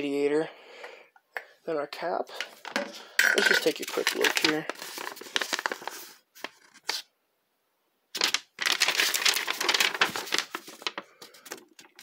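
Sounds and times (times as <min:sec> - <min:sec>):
paper crinkling and rustling: 0:02.4 - 0:07.0, 0:08.2 - 0:12.0.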